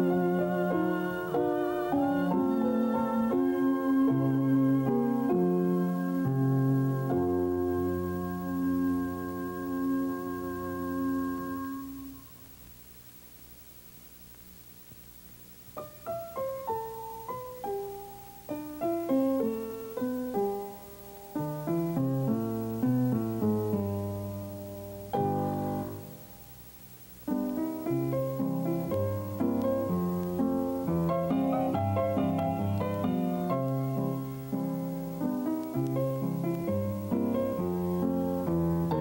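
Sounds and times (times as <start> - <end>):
piano notes and chords: 0.0 - 12.2, 15.8 - 26.3, 27.3 - 39.0.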